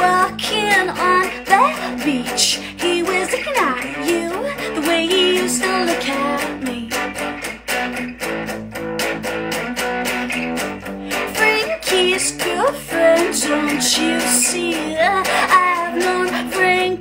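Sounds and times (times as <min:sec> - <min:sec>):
person singing: 0:00.0 - 0:07.4, 0:11.1 - 0:17.0
electric guitar strumming: 0:00.0 - 0:17.0.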